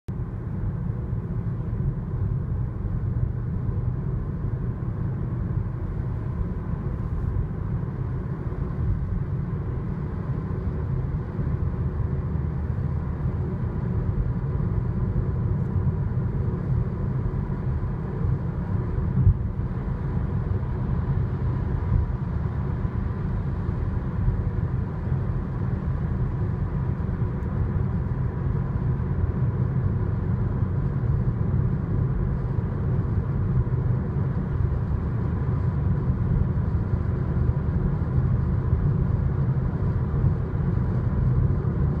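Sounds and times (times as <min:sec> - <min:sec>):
road and engine rumble: 0:00.1 - 0:42.0.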